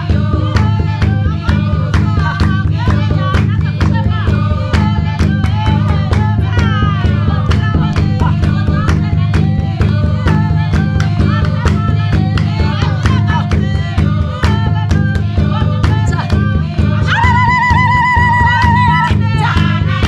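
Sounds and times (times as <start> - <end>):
song with quick beat: 0.0 - 20.0
plucked strings: 6.3 - 13.7.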